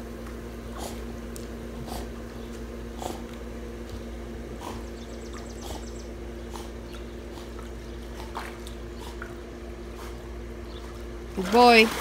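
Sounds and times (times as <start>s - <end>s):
steady low hum: 0.0s - 12.0s
dog splashing in water: 10.8s - 12.0s.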